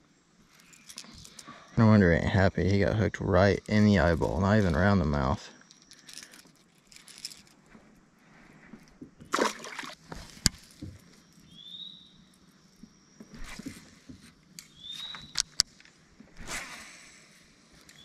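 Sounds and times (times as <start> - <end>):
water splashing beside boat: 9.2 - 10.4.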